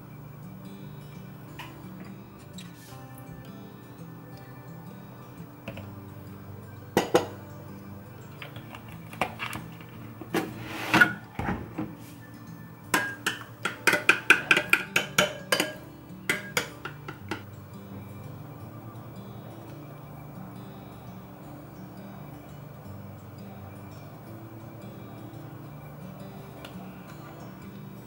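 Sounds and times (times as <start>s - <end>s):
soft background music: 0.0s - 28.0s
utensil clinking against ceramic bowl: 12.9s - 17.6s.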